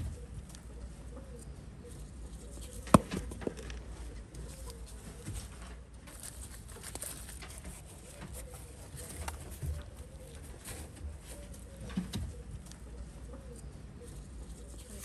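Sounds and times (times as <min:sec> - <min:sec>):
doves cooing: 0:00.0 - 0:15.0
handling eggplants over basket: 0:02.0 - 0:12.9.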